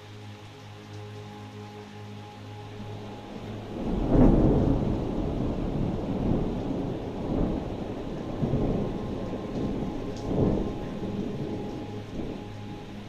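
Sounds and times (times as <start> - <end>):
thunder clap and rumble: 3.5 - 13.0.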